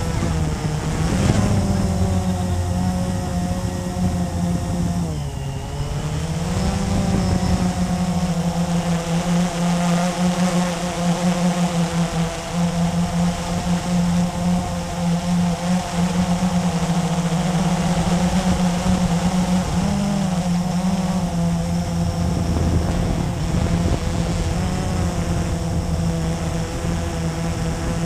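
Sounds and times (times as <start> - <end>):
quadcopter motors humming: 0.0 - 28.0.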